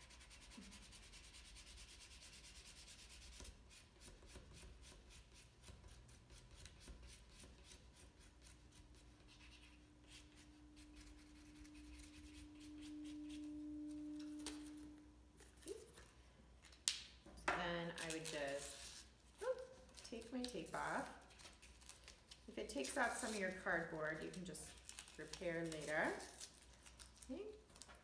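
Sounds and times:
marker scribbling on cardboard: 0.0 - 10.4
steady low hum: 4.7 - 21.4.

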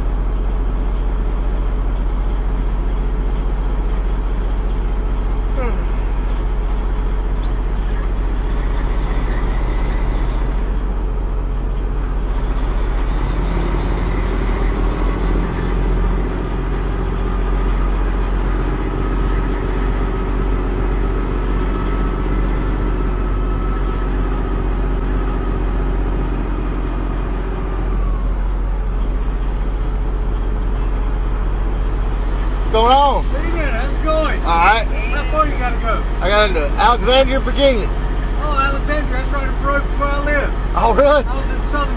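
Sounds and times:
diesel truck engine idling: 0.0 - 41.9
steady humming tone: 3.4 - 10.9.

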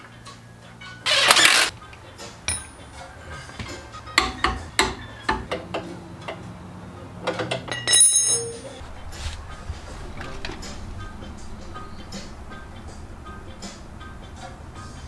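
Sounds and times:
ringing metallic clink: 2.5 - 3.0, 7.7 - 8.8
tools knocking on metal: 3.6 - 6.4.

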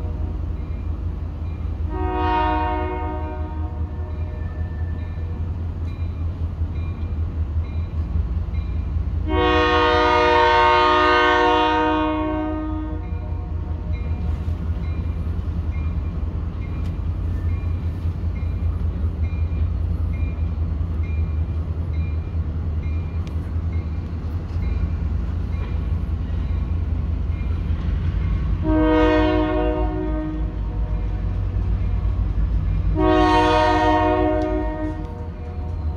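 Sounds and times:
train low rumble: 0.0 - 35.9
locomotive horn blasts: 1.8 - 5.0, 9.2 - 14.3, 28.6 - 31.4, 32.9 - 35.9.

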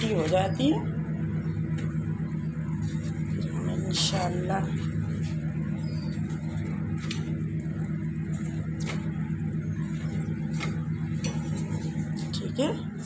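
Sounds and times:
gas burner flame rumbling: 0.0 - 13.0.

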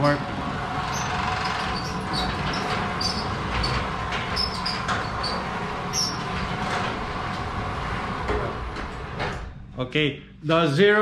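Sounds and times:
door rollers rattling on tracks: 0.0 - 9.6
garage door opener motor: 0.0 - 9.8
short high squeaks: 0.8 - 6.6.

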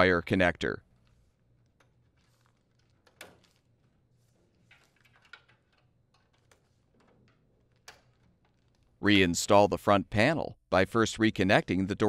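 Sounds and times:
faint handling noise: 0.6 - 9.2
wire connectors clicking: 0.8 - 9.1.

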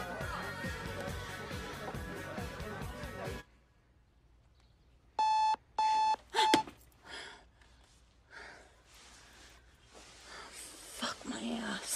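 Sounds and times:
alarm clock beeping: 5.2 - 6.7
faint breathy rustling: 7.0 - 11.9.

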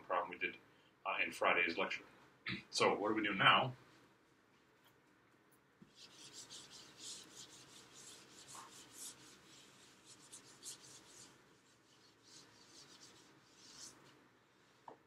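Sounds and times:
eraser swishing on whiteboard: 5.8 - 15.0.

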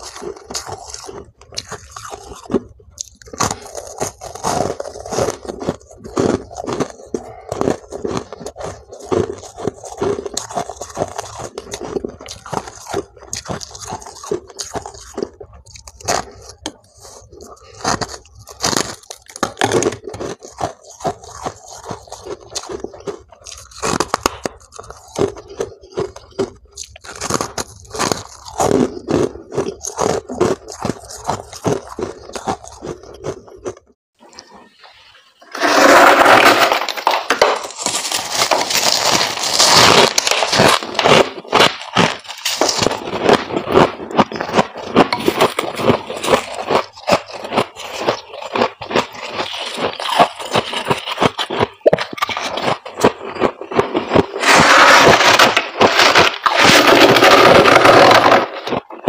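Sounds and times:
ice being crunched by teeth: 0.0 - 34.4, 35.5 - 59.0
frost scraped off freezer walls: 35.4 - 59.0.

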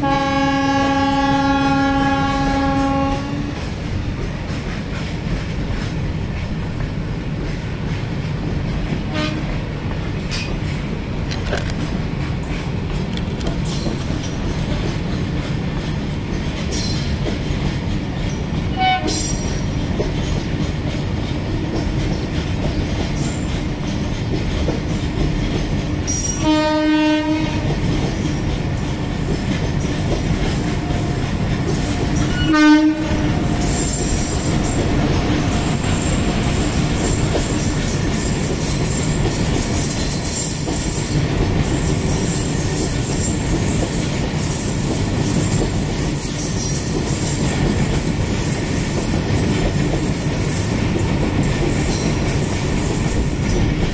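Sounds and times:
train horn: 0.0 - 3.6, 9.1 - 9.6, 18.7 - 19.5, 26.2 - 27.8, 31.9 - 34.6
train wheels rumbling and clattering: 0.0 - 53.9.

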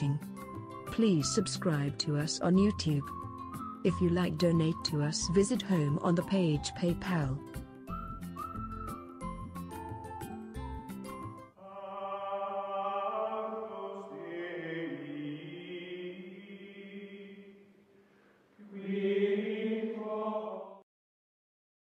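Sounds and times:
choir singing sustained chords: 11.6 - 17.6, 18.6 - 20.8.

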